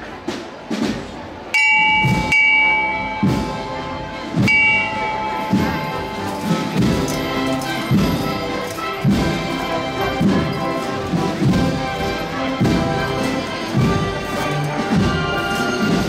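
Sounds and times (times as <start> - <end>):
drum beats: 0.0 - 16.0
marching band music: 0.0 - 16.0
bell struck sharply: 1.6 - 3.8, 4.4 - 7.4.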